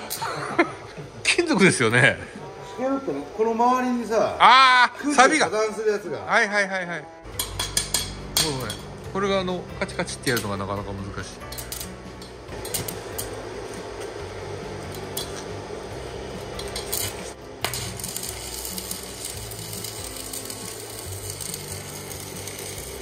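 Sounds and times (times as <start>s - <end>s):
welding arc crackling sizzle: 0.0s - 2.2s, 7.2s - 23.0s.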